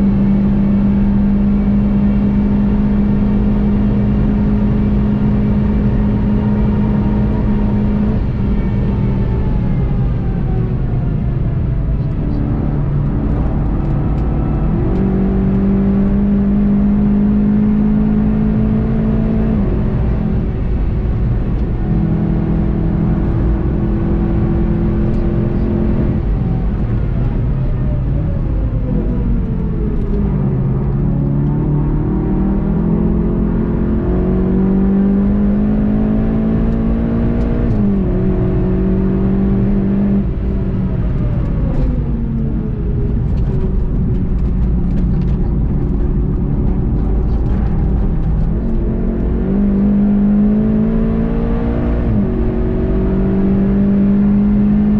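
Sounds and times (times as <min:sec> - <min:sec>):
car engine revving: 0:00.0 - 0:54.9
road and wind noise: 0:00.0 - 0:54.9.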